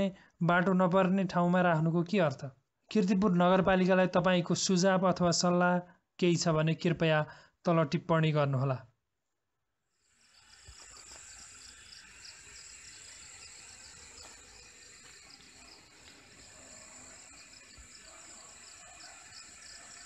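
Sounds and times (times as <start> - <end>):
insects chirping: 10.0 - 20.0.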